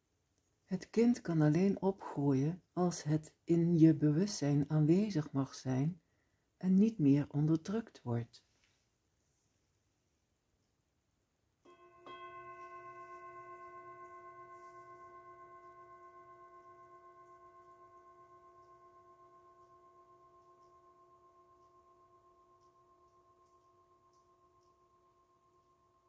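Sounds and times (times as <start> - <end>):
singing bowl ringing: 11.6 - 26.0.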